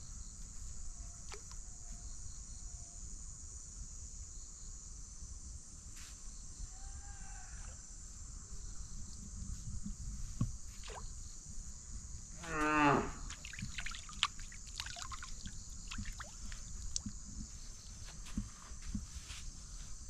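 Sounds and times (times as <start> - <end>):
high drone of insects: 0.0 - 20.0
cow mooing: 12.4 - 13.3.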